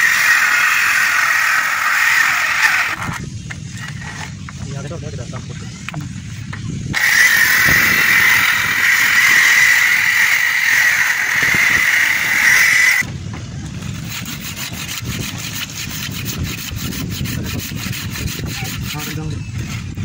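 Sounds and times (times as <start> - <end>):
handsaw rasping: 0.0 - 3.2, 7.0 - 13.0, 14.0 - 19.9
circular saw whine: 0.0 - 6.0, 6.8 - 13.1.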